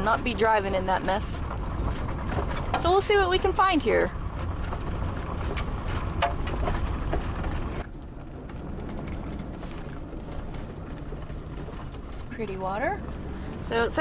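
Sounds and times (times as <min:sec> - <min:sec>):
knocks and rattles: 0:00.0 - 0:14.0
low hum: 0:00.0 - 0:14.0
tyres and engine rumbling: 0:00.0 - 0:14.0.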